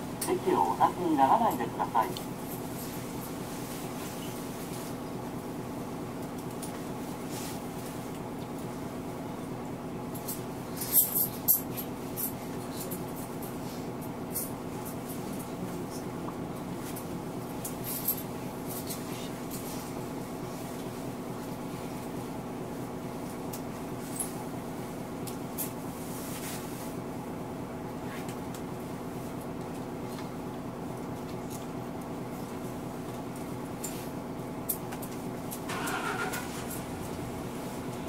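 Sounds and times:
diesel bus engine idling: 35.7s - 38.0s.

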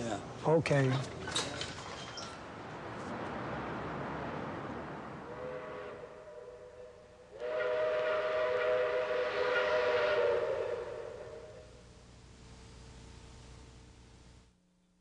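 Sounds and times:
train whistle chord: 5.3s - 11.8s.

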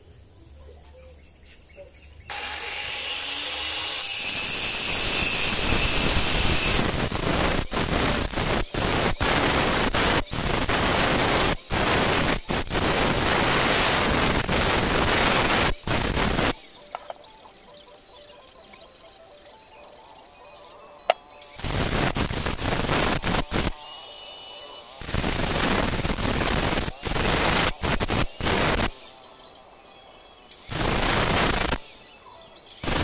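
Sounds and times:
grinder grinding stone: 2.3s - 17.1s
angle grinder whining: 2.3s - 17.2s, 20.8s - 29.5s.

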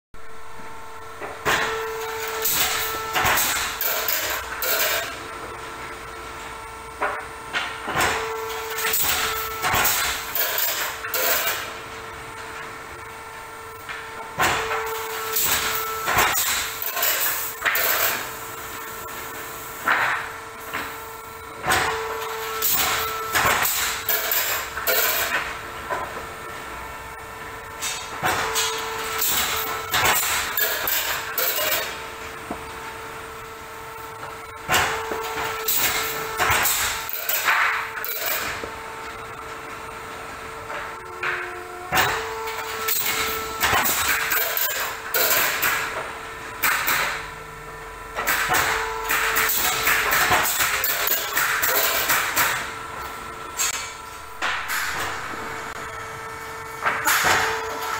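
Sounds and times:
machine hum: 0.2s - 57.9s
nailing machine strikes: 1.4s - 5.2s, 7.9s - 11.7s, 14.4s - 18.3s, 21.6s - 25.5s, 27.8s - 32.0s, 34.7s - 38.6s, 41.3s - 46.0s, 46.6s - 47.3s, 48.2s - 52.7s, 56.8s - 57.9s.

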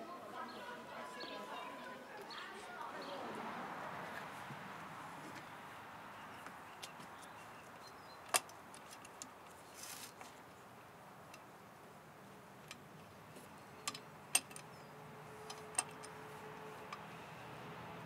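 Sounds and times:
soft rustle: 8.7s - 10.6s
hand tools clicking and tapping: 13.8s - 14.8s, 15.4s - 17.1s.

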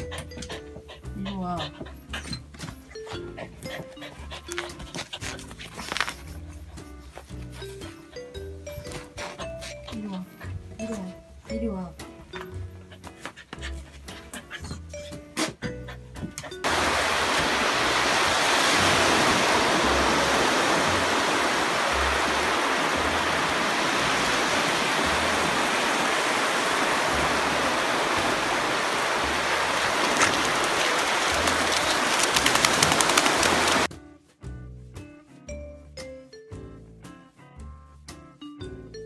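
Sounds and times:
ocean surf breaking: 16.6s - 33.9s
background music with low beat: 33.9s - 39.0s.

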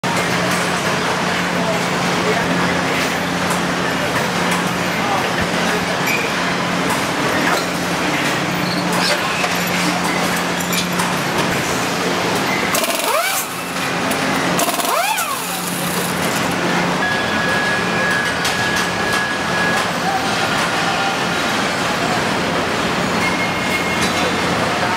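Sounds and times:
factory hum: 0.0s - 24.9s
steady high tone: 12.4s - 21.2s
power nut runner whining: 12.7s - 16.5s.

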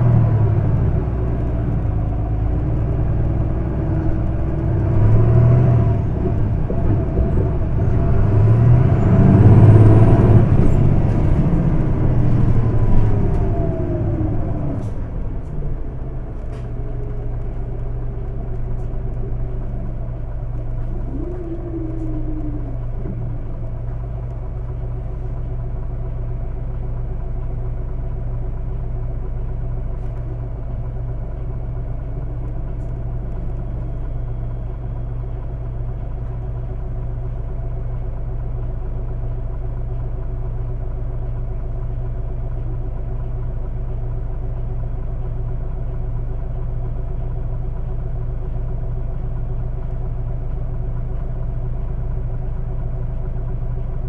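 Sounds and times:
bus diesel engine idling: 0.0s - 54.0s.

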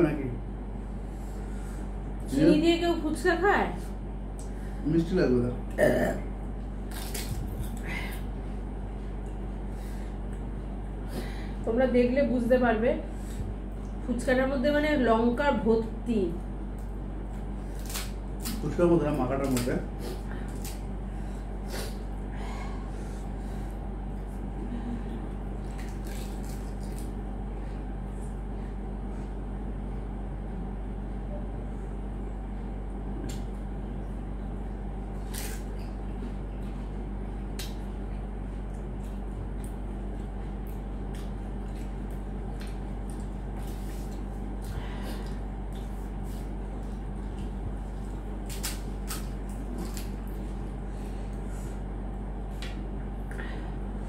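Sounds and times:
low hum and hiss: 0.0s - 54.0s
crisp shells cracking: 25.6s - 27.2s.

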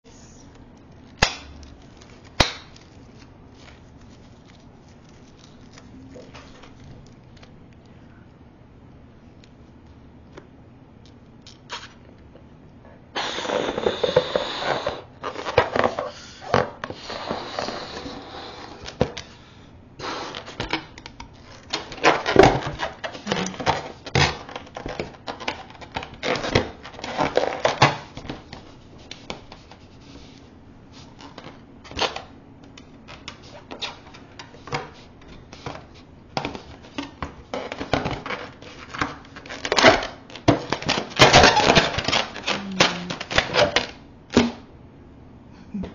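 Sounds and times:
balloon squeaks and rubbing: 11.7s - 12.0s, 13.2s - 18.9s, 41.2s - 43.8s
breath blown into balloon: 13.2s - 15.1s.

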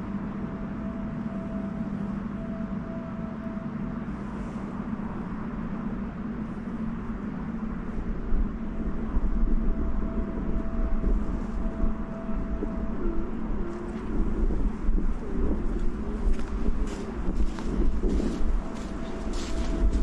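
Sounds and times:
constant hum: 0.0s - 20.0s
low rumble: 0.0s - 20.0s
wind buffeting microphone: 4.2s - 20.0s.

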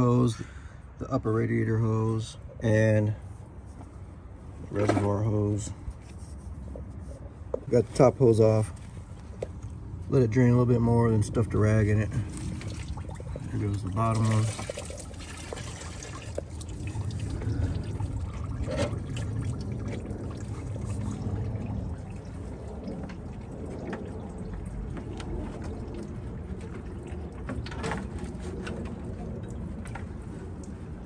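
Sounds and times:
coolant splashing trickle: 8.3s - 31.0s.

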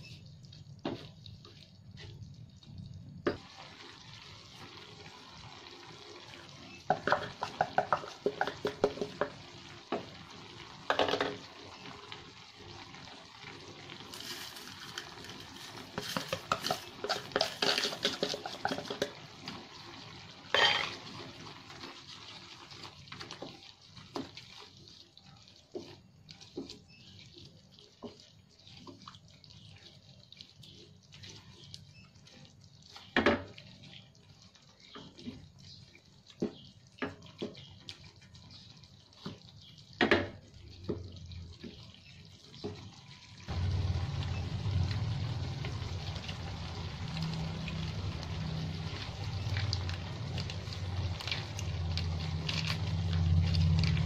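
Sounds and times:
sauce simmering: 0.0s - 54.0s
spatula knocking pan: 6.9s - 10.1s
spatula scraping frying pan: 14.1s - 19.5s, 20.5s - 33.2s.

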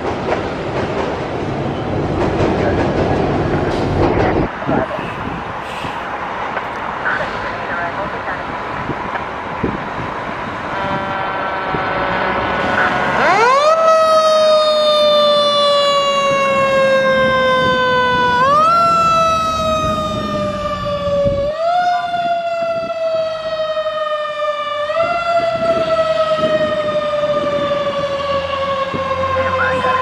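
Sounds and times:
truck engine rumble: 2.1s - 30.0s
fire engine siren: 7.0s - 30.0s.

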